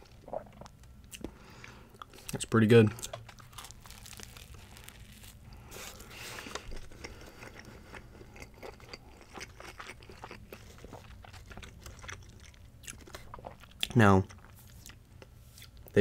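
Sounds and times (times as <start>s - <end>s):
chewing with soft crunches: 0.0s - 16.0s
biting into crusty sandwich: 3.0s - 13.5s.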